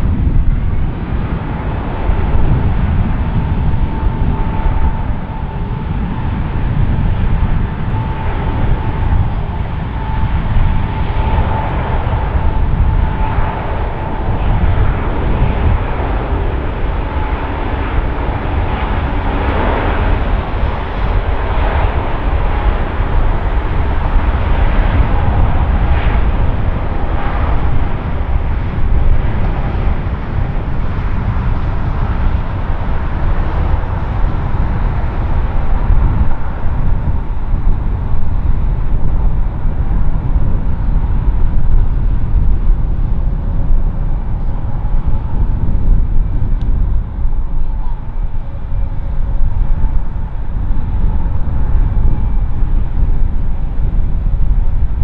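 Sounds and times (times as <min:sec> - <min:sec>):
jet engines rumbling: 0:00.0 - 0:55.0.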